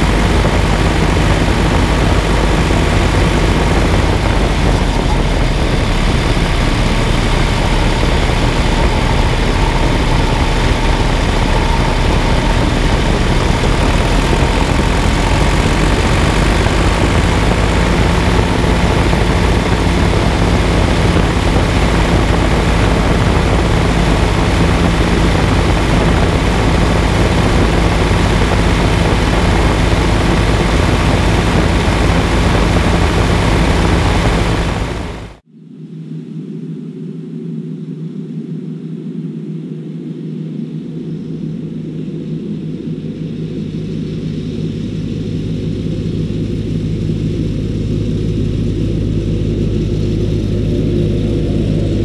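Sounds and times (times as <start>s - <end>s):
steady low hum: 0.0s - 35.4s
tractor diesel engine rumbling: 0.0s - 35.4s.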